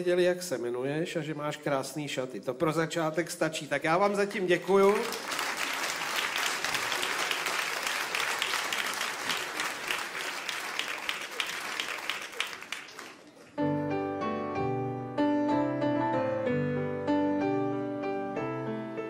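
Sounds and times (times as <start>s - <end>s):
audience applauding: 4.5s - 13.6s
piano playing chords: 13.6s - 19.0s.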